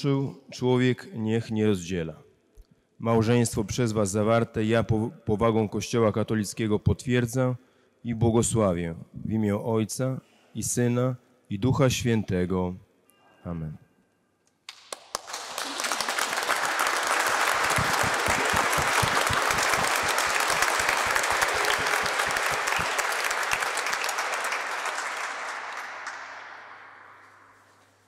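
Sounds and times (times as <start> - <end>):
crowd clapping: 14.7 - 27.8.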